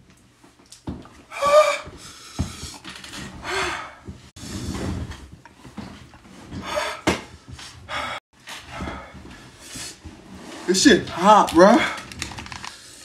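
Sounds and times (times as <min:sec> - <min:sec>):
man panting and gasping: 0:01.3 - 0:04.1, 0:06.6 - 0:07.2, 0:07.8 - 0:10.0.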